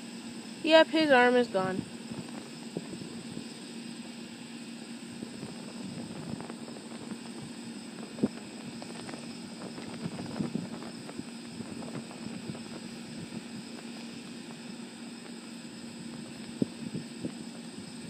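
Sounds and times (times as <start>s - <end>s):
steady low hum: 0.0s - 18.0s
burning plastic crackling and popping: 5.3s - 17.6s.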